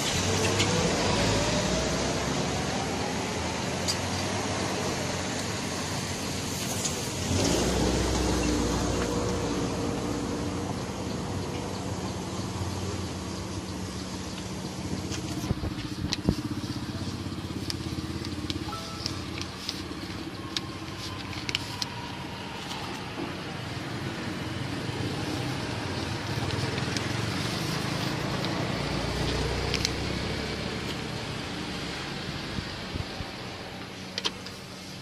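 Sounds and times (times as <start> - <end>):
road traffic noise: 0.0 - 35.0
paper and leaf crackling: 15.0 - 23.1.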